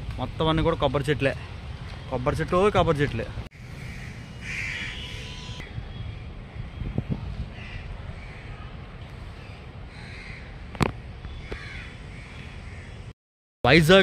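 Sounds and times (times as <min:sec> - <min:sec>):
crows cawing: 0:03.6 - 0:05.6, 0:07.5 - 0:08.6, 0:09.9 - 0:10.8, 0:11.4 - 0:13.1.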